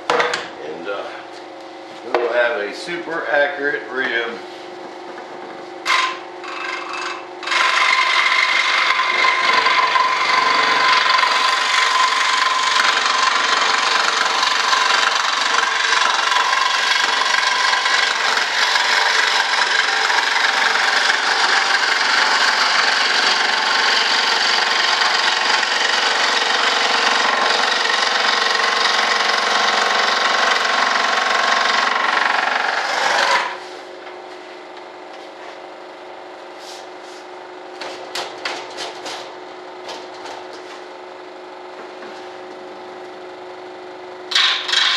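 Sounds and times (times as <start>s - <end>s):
electric saw cutting with whine: 5.8s - 33.6s, 44.3s - 44.9s.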